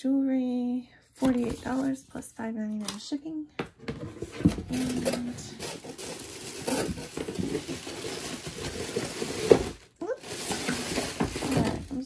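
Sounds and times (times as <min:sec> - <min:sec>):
packaging rustling: 0:01.2 - 0:02.0, 0:04.0 - 0:12.0.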